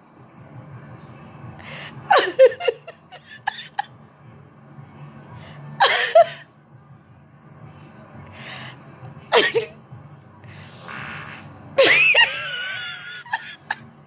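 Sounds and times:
person laughing loudly: 0:02.1 - 0:03.9, 0:11.8 - 0:13.9.

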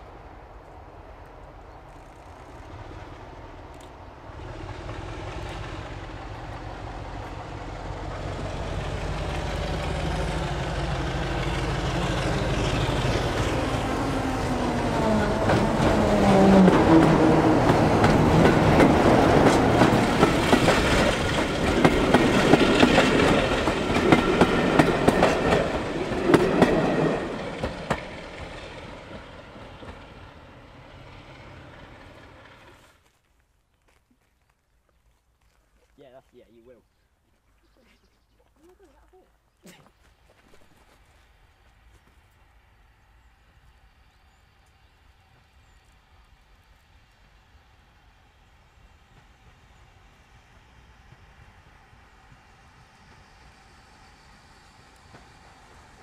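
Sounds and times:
diesel locomotive engine working hard: 0:02.5 - 0:32.8, 0:45.2 - 0:56.0
train wheels clattering over rail joints: 0:15.2 - 0:30.1.

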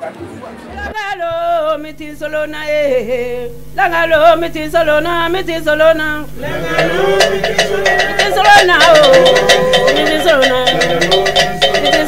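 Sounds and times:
men chanting a song: 0:00.9 - 0:12.0
sharp taps: 0:03.3 - 0:12.0.

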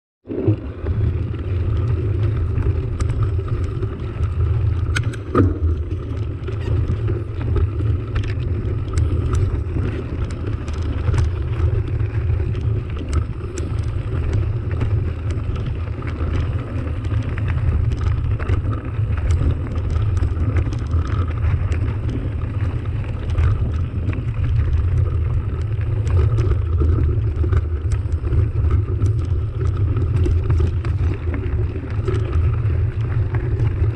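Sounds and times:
bike tyres rumbling on gravel: 0:00.3 - 0:33.9
stones and bike rattling: 0:00.3 - 0:33.9.

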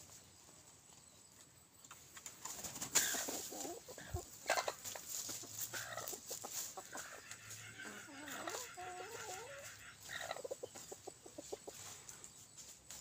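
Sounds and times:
pecking among dry leaves: 0:00.0 - 0:13.0
rooster clucking low: 0:05.5 - 0:11.8.

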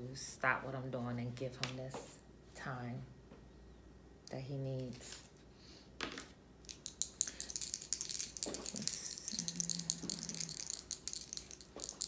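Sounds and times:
dice rattling in a hand: 0:06.7 - 0:12.0.

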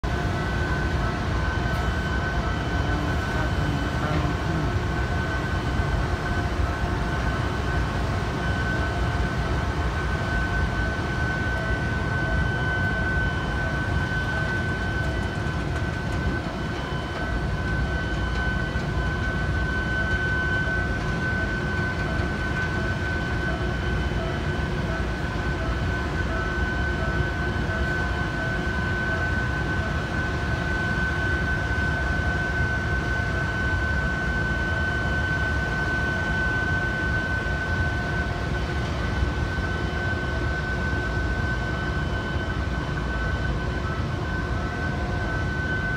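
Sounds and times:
crane mechanical drone: 0:00.0 - 0:45.9
high-pitched whine: 0:00.0 - 0:45.9.

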